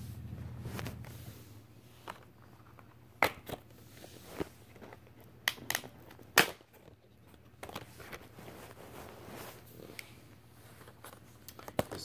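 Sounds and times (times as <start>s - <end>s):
plastic case clicks and snaps: 5.4s - 6.6s.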